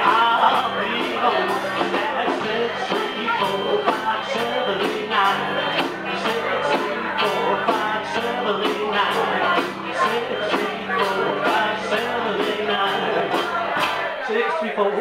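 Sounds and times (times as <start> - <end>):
electric guitars: 0.0 - 14.2
drums with a steady beat: 0.0 - 14.4
man singing into a microphone: 0.0 - 15.0.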